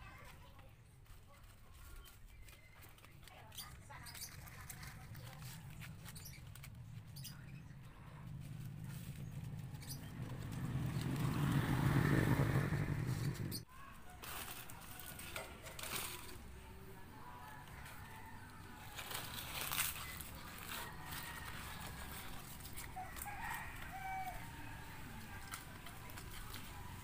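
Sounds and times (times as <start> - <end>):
palm fronds rustling and ticking: 0.0 - 27.0
engine drone: 6.0 - 13.6.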